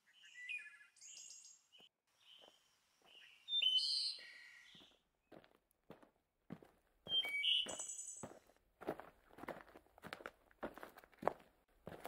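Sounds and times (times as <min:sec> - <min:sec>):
birds chirping: 0:00.0 - 0:05.6, 0:06.9 - 0:08.6.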